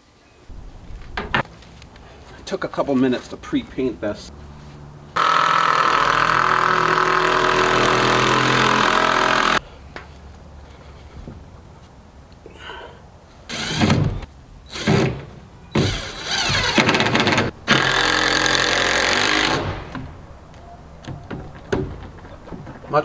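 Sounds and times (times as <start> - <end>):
cordless drill driving screws: 5.2 - 9.6, 13.5 - 14.0, 15.8 - 19.7.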